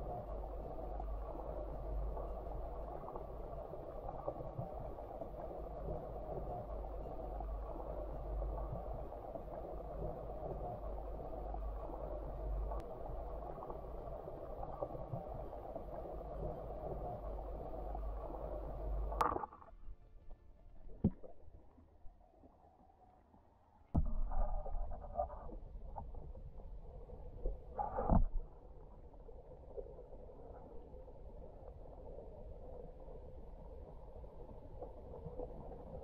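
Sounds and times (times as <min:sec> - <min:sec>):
underwater stream rushing: 0:00.0 - 0:19.7, 0:24.0 - 0:36.0
faint tick: 0:11.8 - 0:12.9.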